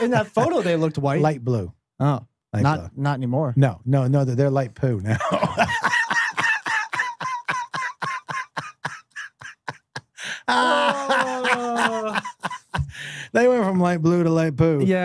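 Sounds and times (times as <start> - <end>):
man laughing hard: 0.0 - 0.9, 5.2 - 13.0.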